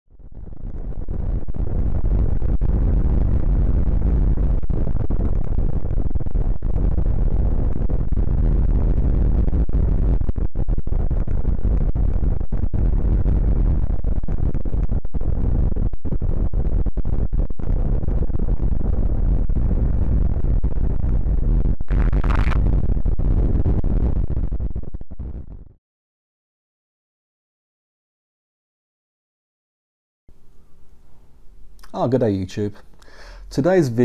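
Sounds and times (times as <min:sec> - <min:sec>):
loud wind rush on microphone: 0:00.2 - 0:25.8.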